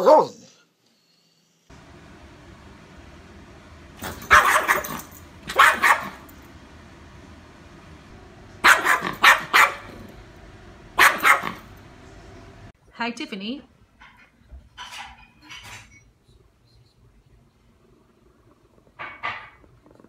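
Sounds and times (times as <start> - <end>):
small dog barking: 4.0 - 6.3, 8.6 - 10.0, 11.0 - 11.7.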